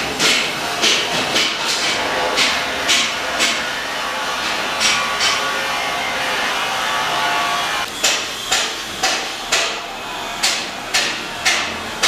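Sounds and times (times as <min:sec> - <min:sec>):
scraping work noise: 0:00.0 - 0:12.0
hammer blows: 0:00.1 - 0:12.0.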